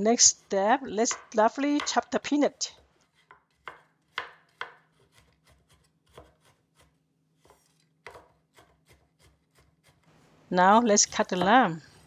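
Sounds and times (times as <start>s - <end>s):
cleaver chopping on wooden board: 3.2s - 5.3s.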